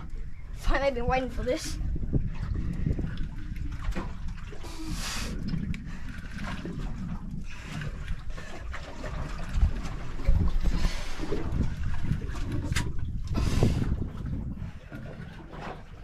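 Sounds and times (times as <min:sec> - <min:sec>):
steady low rumble: 0:00.0 - 0:15.4
water sloshing around a boat: 0:00.0 - 0:16.0.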